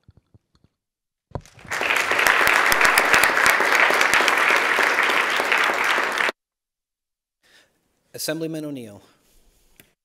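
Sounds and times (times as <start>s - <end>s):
crowd applauding: 1.4s - 6.4s.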